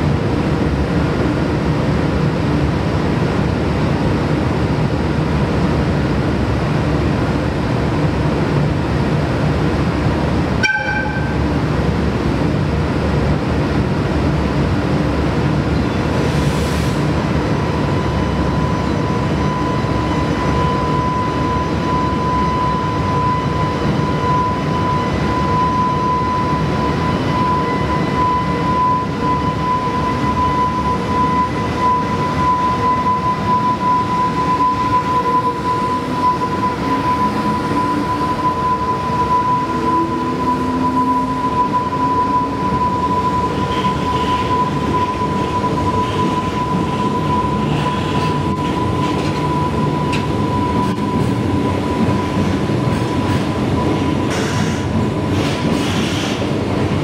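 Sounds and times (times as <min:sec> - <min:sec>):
locomotive high whine: 0:00.0 - 0:57.0
locomotive horn toot: 0:10.6 - 0:11.4, 0:34.4 - 0:51.2.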